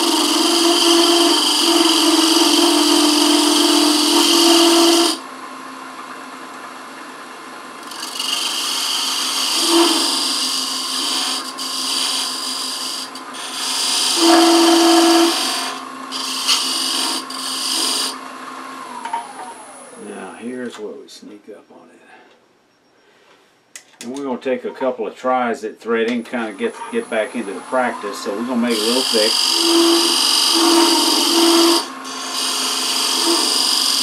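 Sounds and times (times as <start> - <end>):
lathe humming: 0.0 - 5.2, 7.8 - 20.0, 26.4 - 34.0
tool scraping spinning wood: 0.0 - 5.2, 7.8 - 18.2, 26.3 - 34.0.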